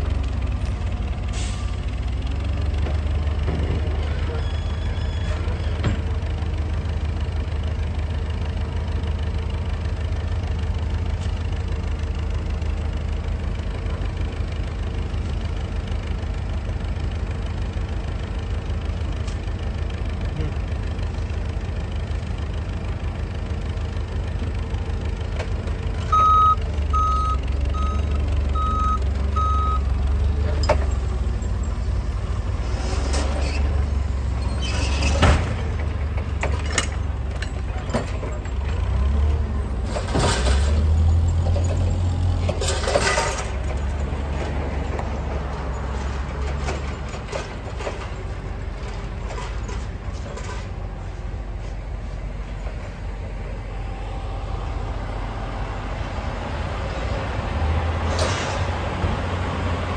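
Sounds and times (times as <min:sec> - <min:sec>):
forklift engine running: 0:00.0 - 0:59.9
reversing alarm beeping: 0:26.1 - 0:29.9.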